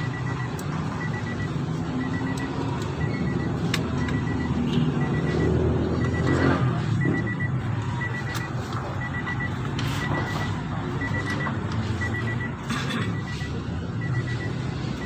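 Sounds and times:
high electronic warning beep: 0:00.0 - 0:15.0.

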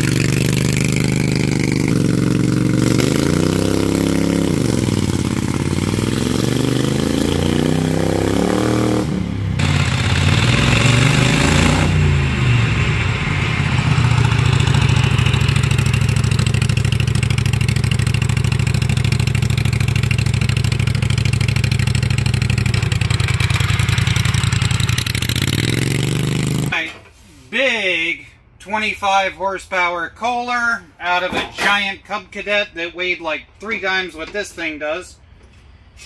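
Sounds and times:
small gasoline engine running: 0:00.0 - 0:06.3, 0:09.6 - 0:26.7.

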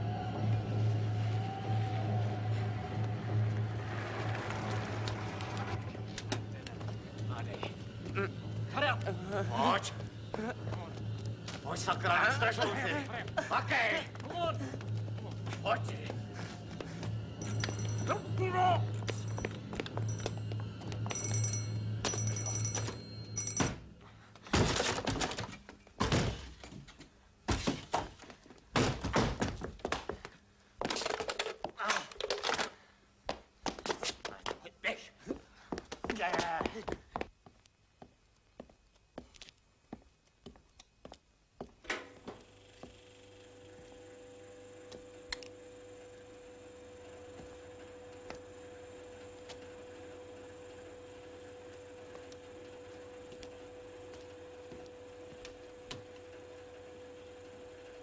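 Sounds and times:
low hum: 0:00.0 - 0:24.3.

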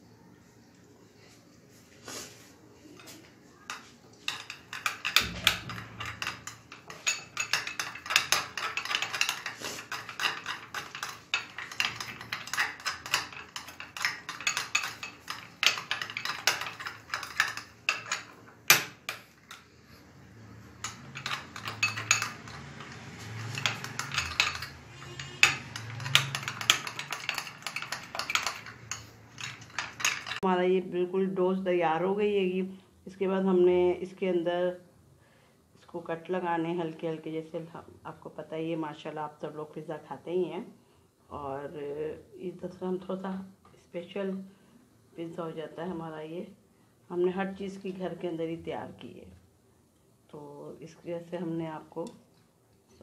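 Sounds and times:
metal spoon scraping glass bowl: 0:04.4 - 0:18.3, 0:20.8 - 0:30.4.

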